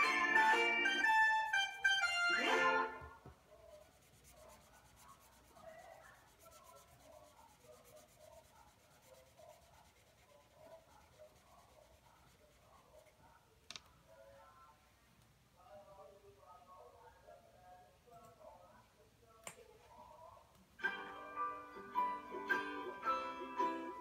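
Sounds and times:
marker scratching on paper: 3.6 - 13.2.

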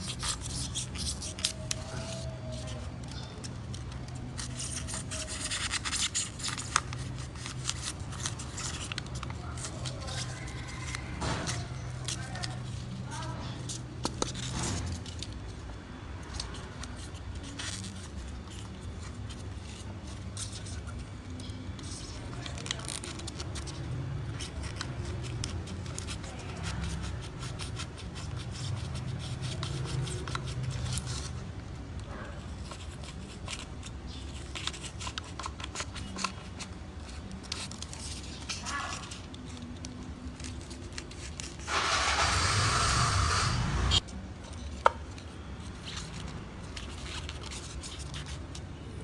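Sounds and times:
crisp clicks and rustling: 0.0 - 15.6, 16.2 - 42.2, 44.0 - 49.0.

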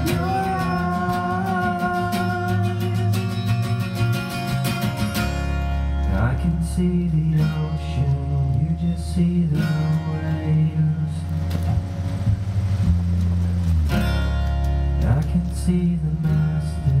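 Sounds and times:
electric bass notes: 0.0 - 17.0
strummed acoustic guitar: 0.0 - 17.0.

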